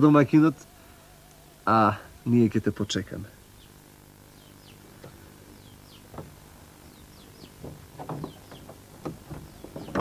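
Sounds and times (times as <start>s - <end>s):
small birds chirping: 0.0s - 10.0s
soft knocks: 6.1s - 6.4s, 7.4s - 10.0s.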